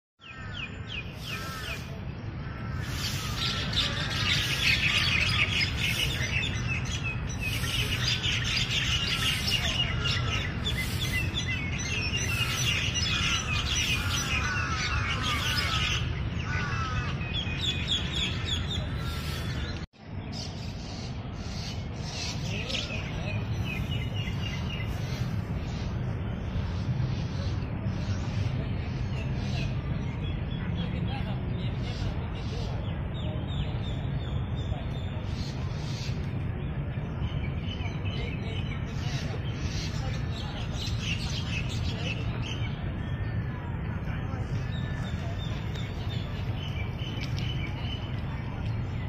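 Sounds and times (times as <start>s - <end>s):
birds chirping and twittering: 0.2s - 49.0s.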